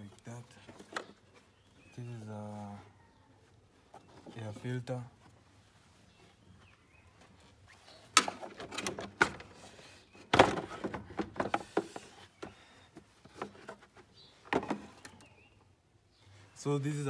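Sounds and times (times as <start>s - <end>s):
hard plastic knocks and clatter: 0.6s - 1.4s, 8.1s - 9.6s, 10.2s - 15.3s.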